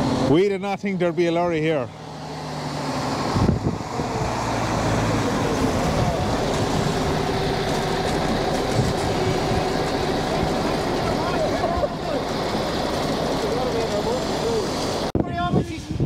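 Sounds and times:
wind buffeting microphone: 0:03.1 - 0:12.0.

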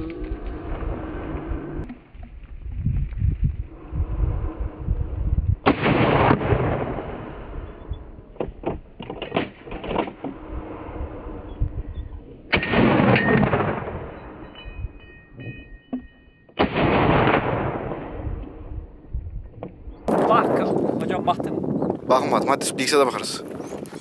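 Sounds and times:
loud echoing gunshots: 0:05.6 - 0:07.5, 0:12.5 - 0:14.2, 0:16.6 - 0:18.2.

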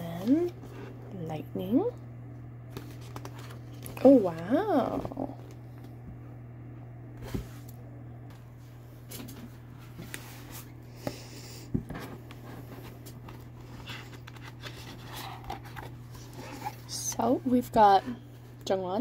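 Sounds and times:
steady low hum: 0:00.0 - 0:19.0
paper and cover rustling: 0:02.7 - 0:05.6, 0:11.9 - 0:18.2.

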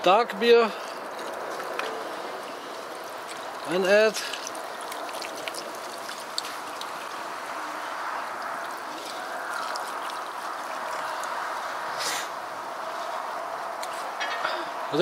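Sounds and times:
beer pouring into a pot: 0:01.0 - 0:11.6.

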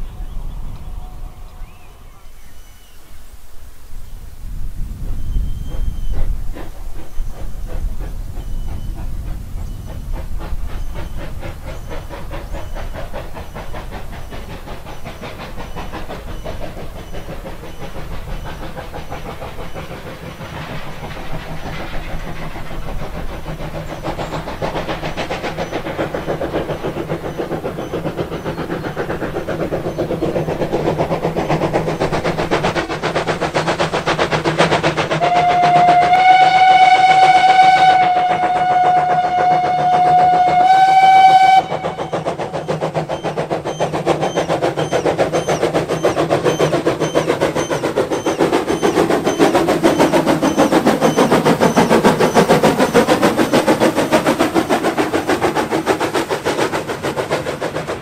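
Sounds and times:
steam locomotive running past: 0:00.0 - 0:58.0
steam whistle blast: 0:35.2 - 0:42.3.

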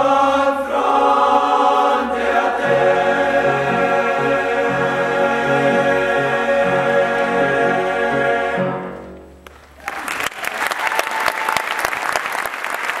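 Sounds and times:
choir singing chord: 0:00.0 - 0:09.2
audience applauding: 0:09.4 - 0:13.0.

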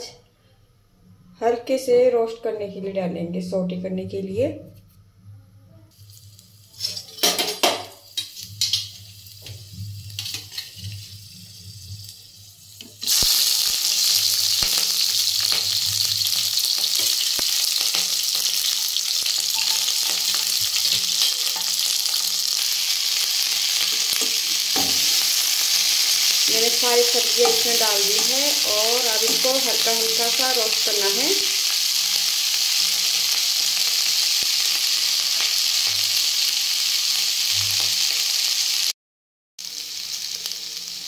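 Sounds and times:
spatula stirring vegetables: 0:05.9 - 0:38.4
vegetables sizzling in hot oil: 0:05.9 - 0:39.0, 0:39.6 - 0:41.0.

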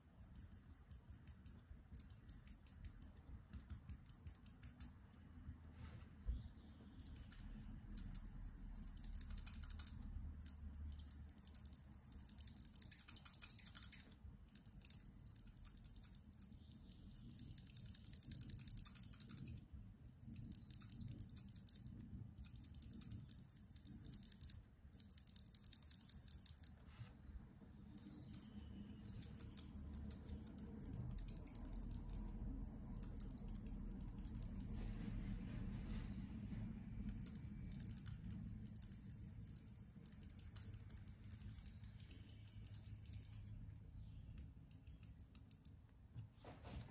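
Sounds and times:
marker scribbling on paper: 0:00.0 - 0:05.7, 0:07.0 - 0:26.8, 0:27.9 - 0:35.1.

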